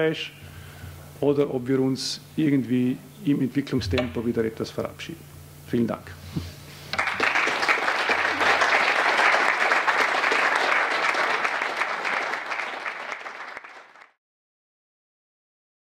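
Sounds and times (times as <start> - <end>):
audience applauding: 6.9 - 14.2.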